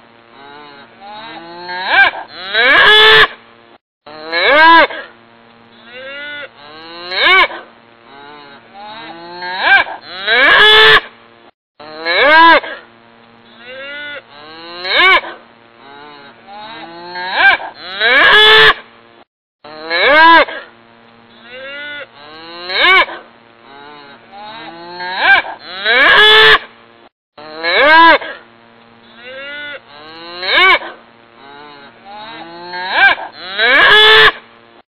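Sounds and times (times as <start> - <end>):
cattle mooing: 0.4 - 3.2, 5.8 - 10.8, 13.5 - 18.7, 21.3 - 26.6, 29.1 - 34.4.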